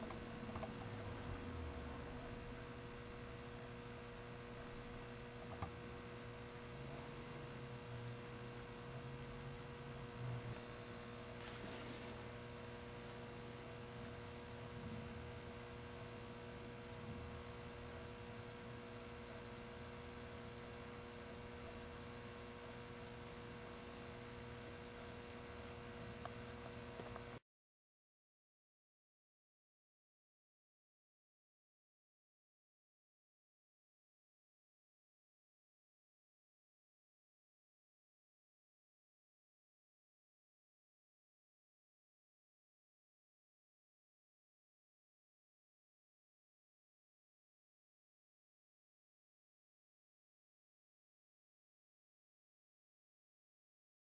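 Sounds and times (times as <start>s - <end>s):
faint electrical hum: 0.0s - 27.4s.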